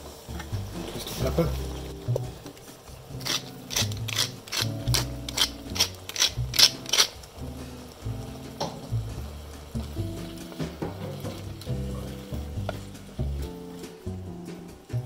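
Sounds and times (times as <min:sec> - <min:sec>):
pepper mill grinding clicks: 0:03.2 - 0:07.2.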